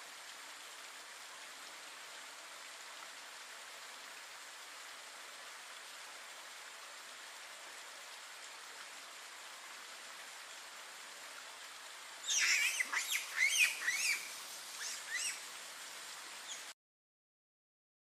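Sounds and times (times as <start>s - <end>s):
steady background hiss: 0.0s - 16.7s
high-pitched chirping animal calls: 12.3s - 15.4s.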